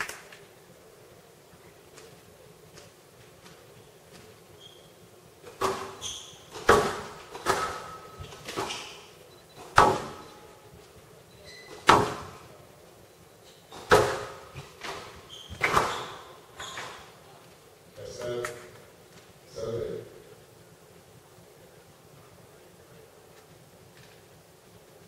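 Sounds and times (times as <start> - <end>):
shoe squeaks on court floor: 4.5 - 5.0, 5.6 - 6.8, 11.3 - 11.8, 14.8 - 17.2
squash ball hitting rackets and walls: 5.4 - 10.3, 11.7 - 12.5, 13.7 - 17.1.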